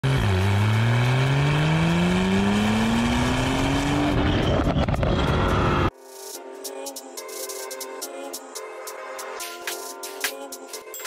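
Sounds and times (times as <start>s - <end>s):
car exhaust accelerating: 0.0s - 5.9s.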